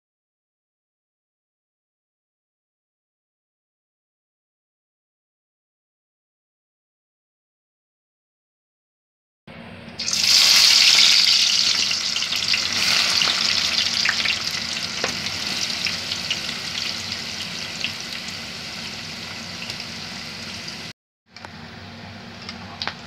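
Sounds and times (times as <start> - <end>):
oil crackles: 10.0 - 18.4
onions sizzling in hot oil: 10.0 - 20.9.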